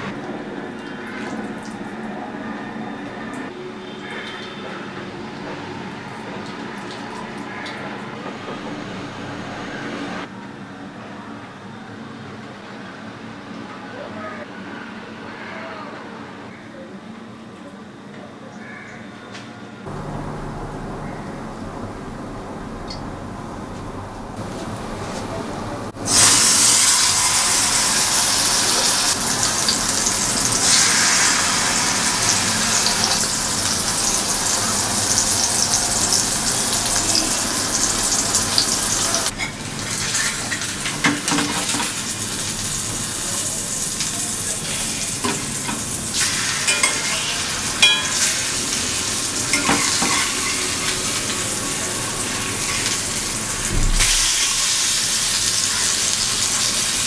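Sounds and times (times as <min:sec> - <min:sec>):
fish sizzling in hot oil: 0:26.0 - 0:57.0.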